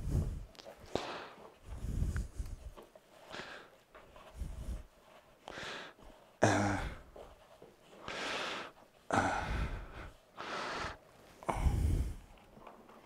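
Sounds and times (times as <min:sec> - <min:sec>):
man breathing heavily: 0:00.0 - 0:12.5
man grunting: 0:06.4 - 0:07.0.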